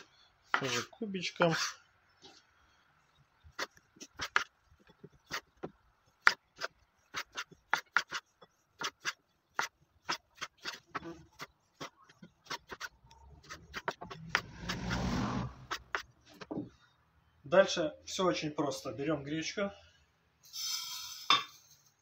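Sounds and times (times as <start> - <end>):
knife chopping on wooden board: 3.6 - 15.1.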